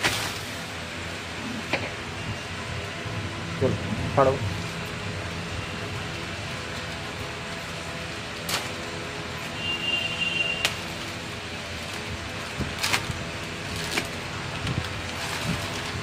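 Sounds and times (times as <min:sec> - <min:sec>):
plastic bag crinkling and ripping: 0:00.0 - 0:00.9, 0:10.6 - 0:16.0.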